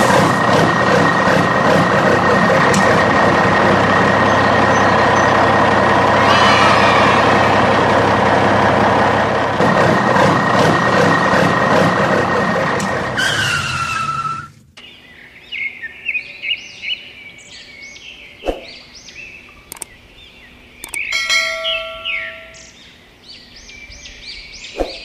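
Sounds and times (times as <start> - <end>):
birds chirping: 2.9 - 8.6, 14.7 - 25.0
rushing noise with falling whistle: 6.2 - 8.1, 13.2 - 14.6
sharp click: 19.7 - 20.0, 20.8 - 21.1.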